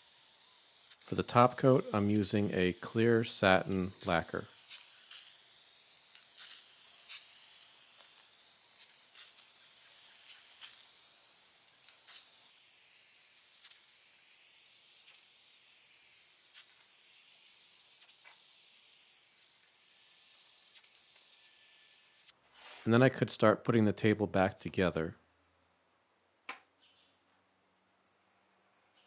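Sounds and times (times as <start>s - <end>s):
aerosol spray can hissing: 0.0s - 22.3s.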